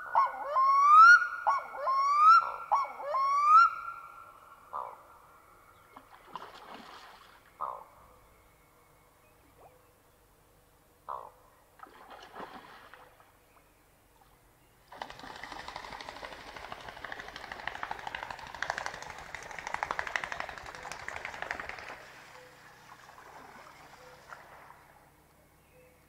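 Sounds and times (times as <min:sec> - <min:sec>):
bird wingbeats and splashes on water: 0:05.8 - 0:07.8, 0:11.8 - 0:13.6, 0:14.2 - 0:25.3.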